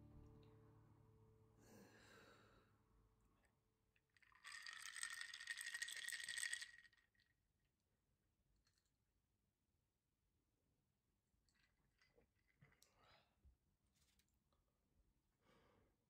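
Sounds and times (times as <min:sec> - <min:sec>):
ice cubes clinking in glass: 0:04.3 - 0:07.0.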